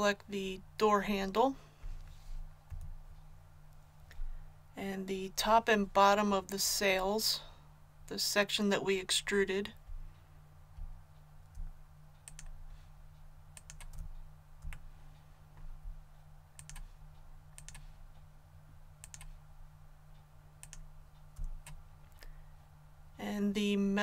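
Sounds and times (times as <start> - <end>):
low steady hum: 0.0 - 24.0
mouse and keyboard clicks: 19.0 - 19.4.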